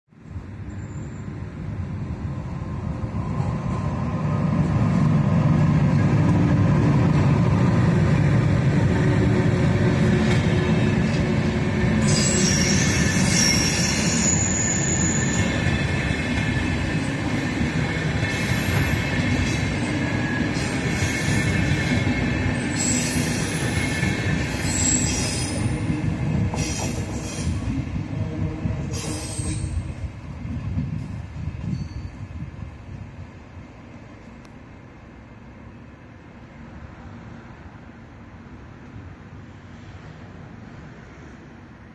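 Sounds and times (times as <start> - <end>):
electric locomotives rumbling past: 0.2 - 41.9
high wheel squeal: 0.6 - 1.4, 12.0 - 17.1, 20.2 - 25.9, 28.9 - 29.9.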